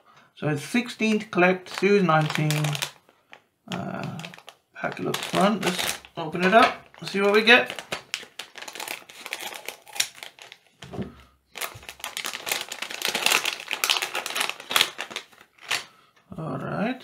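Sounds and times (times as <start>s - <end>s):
plastic packet crinkling: 1.6s - 10.9s, 11.5s - 15.9s.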